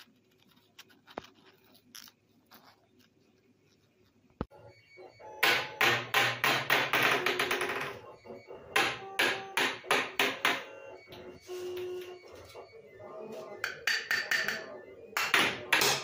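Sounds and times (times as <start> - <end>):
ping pong ball bouncing: 13.6 - 16.0.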